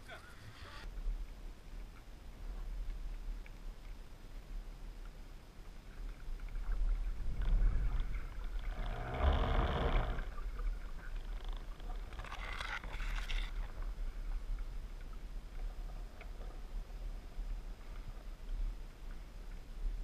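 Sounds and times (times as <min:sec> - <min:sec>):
muffled underwater rumble: 0:00.0 - 0:20.0
crackling: 0:05.7 - 0:18.4.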